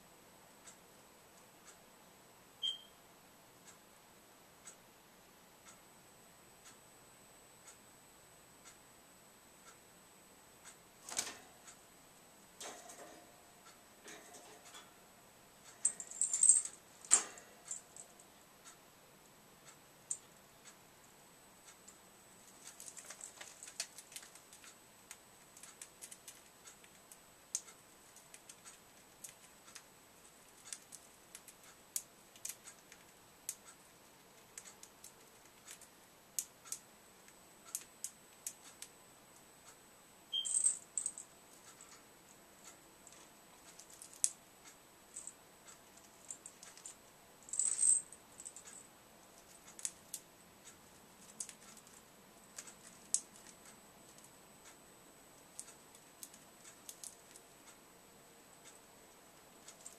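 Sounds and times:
bird clicking on cage bars: 0:15.8 - 0:17.8.

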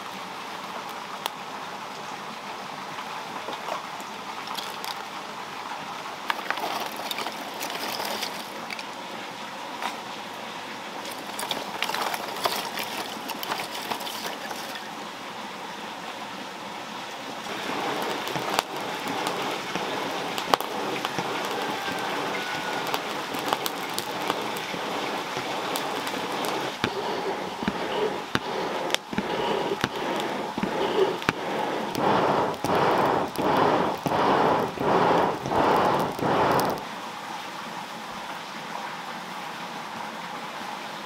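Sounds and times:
charcoal fire crackling and popping: 0:03.4 - 0:09.0, 0:10.9 - 0:15.0, 0:17.4 - 0:36.9
charcoal clinking: 0:11.1 - 0:14.8, 0:17.5 - 0:36.8
bellows blowing air: 0:17.5 - 0:36.8.

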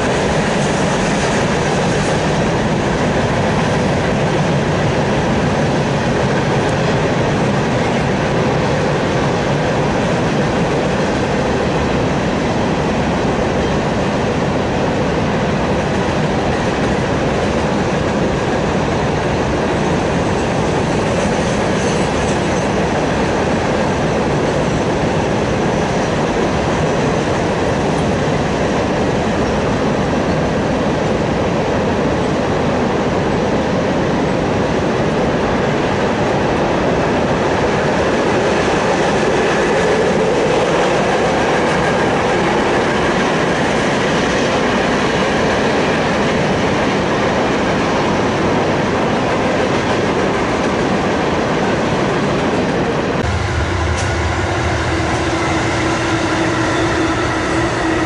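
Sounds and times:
train wheels rolling on rails: 0:00.0 - 0:58.0.

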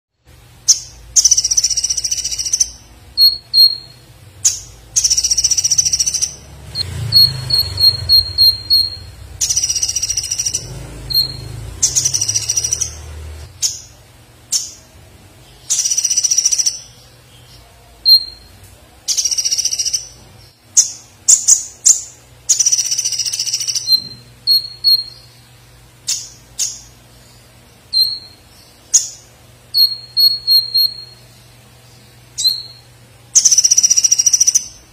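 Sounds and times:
sunbird singing: 0:00.6 - 0:34.9
mimicked woodpecker calls: 0:07.1 - 0:13.8.

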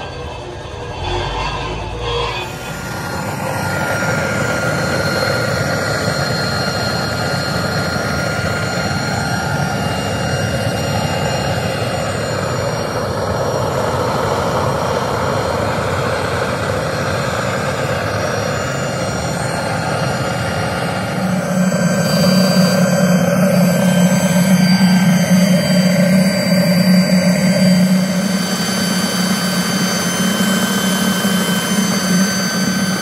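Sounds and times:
furnace burner flame roaring: 0:16.2 - 0:33.0.

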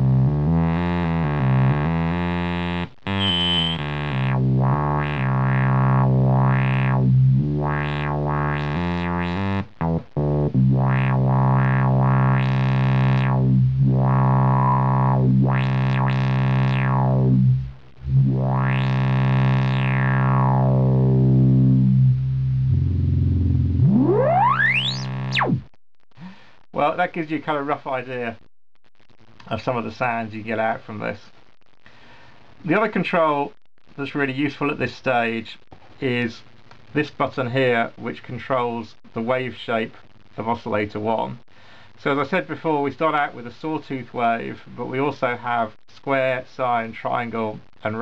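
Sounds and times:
synthesizer sweeping low notes: 0:00.0 - 0:25.7
high whistling tone gliding up: 0:03.2 - 0:03.8, 0:23.8 - 0:25.1.

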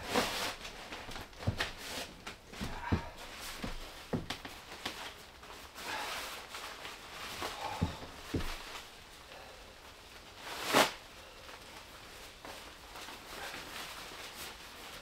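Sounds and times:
nylon rain gear rustling: 0:00.0 - 0:15.0
footsteps on wooden floor: 0:01.0 - 0:04.5, 0:07.6 - 0:08.8.

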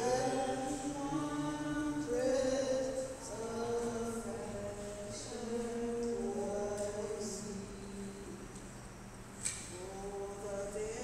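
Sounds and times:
person singing long notes: 0:00.0 - 0:07.6.

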